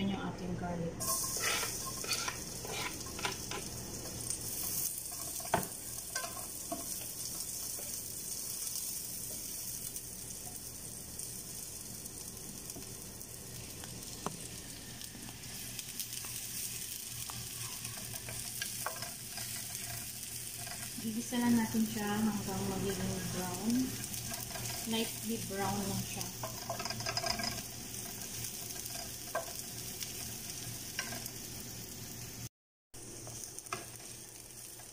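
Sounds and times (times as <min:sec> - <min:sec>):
spatula scraping and tapping pan: 0:01.0 - 0:08.0, 0:16.1 - 0:21.0, 0:23.9 - 0:24.9, 0:25.6 - 0:31.3
garlic sizzling in hot oil: 0:01.0 - 0:34.9.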